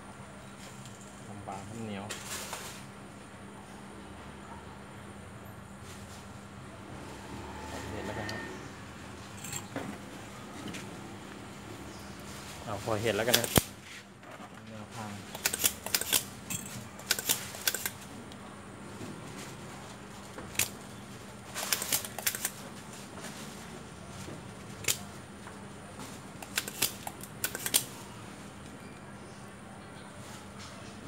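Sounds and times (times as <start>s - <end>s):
hand tools clicking and scraping: 9.2s - 10.0s, 13.1s - 14.6s, 15.2s - 18.4s, 21.5s - 23.0s, 26.0s - 28.0s.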